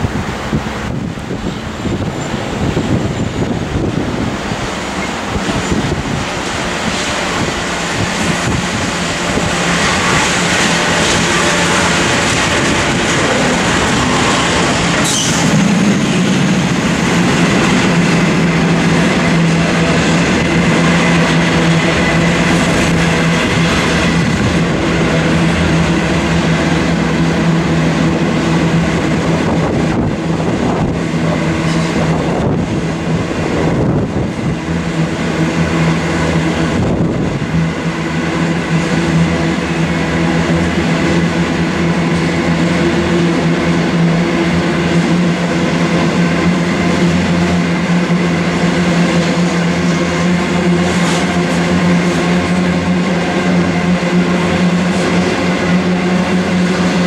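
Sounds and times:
diesel locomotives passing: 0.0 - 57.0.

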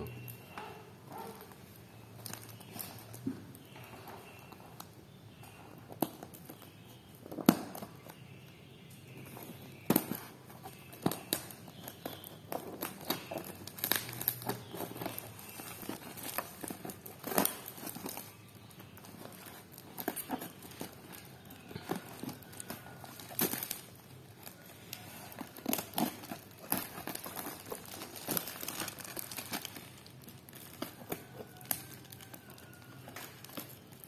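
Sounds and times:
plastic crinkling: 0.0 - 34.0
scissors cutting plastic wrapping: 9.1 - 34.0.

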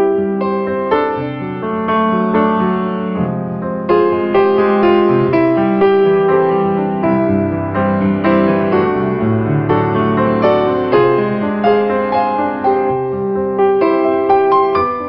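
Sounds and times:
piano melody: 0.0 - 15.0.

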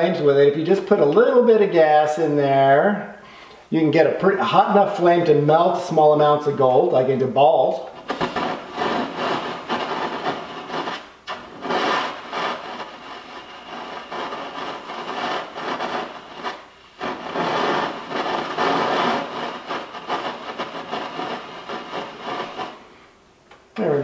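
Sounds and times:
blowpipe torch flame rushing: 6.8 - 23.3.

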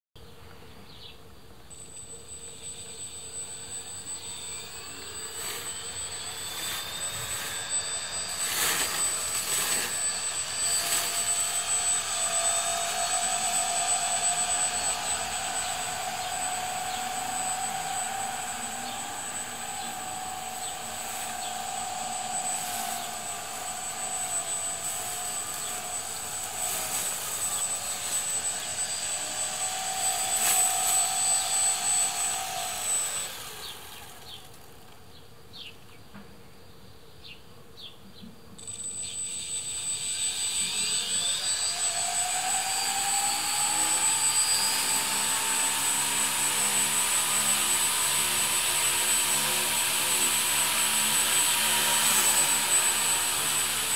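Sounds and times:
electric motors whining: 1.4 - 35.0, 38.6 - 53.9.

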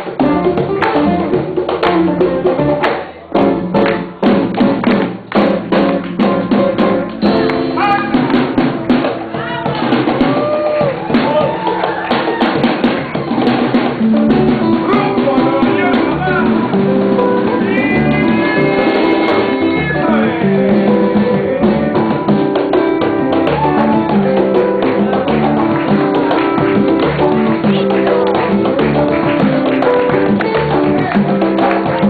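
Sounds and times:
hand percussion and drums: 0.0 - 32.0
live band music: 0.0 - 32.0
person singing: 14.3 - 32.0.

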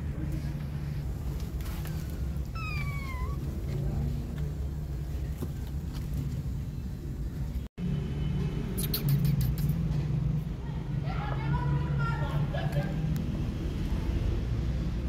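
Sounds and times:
kitten mewing: 2.4 - 3.7.

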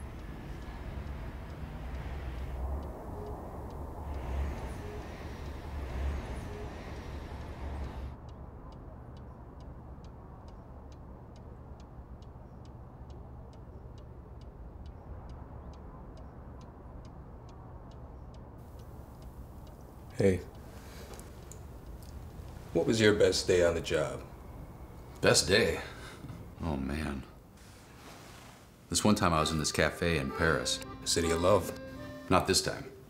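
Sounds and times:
quick clock-like ticking: 0.0 - 22.5
city traffic rumble: 0.0 - 33.0.

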